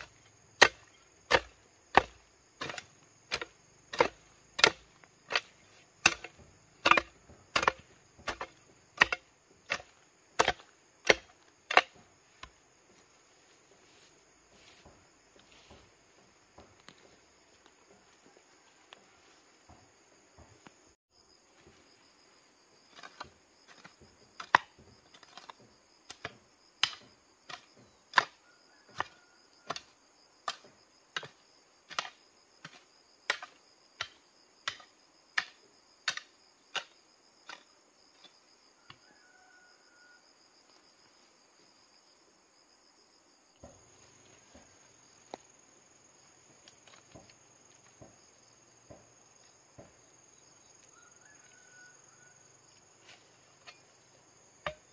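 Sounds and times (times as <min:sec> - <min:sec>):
hoe chopping into stony soil: 0:00.0 - 0:12.6, 0:22.9 - 0:38.3, 0:54.6 - 0:54.9
insects droning: 0:00.0 - 0:54.9.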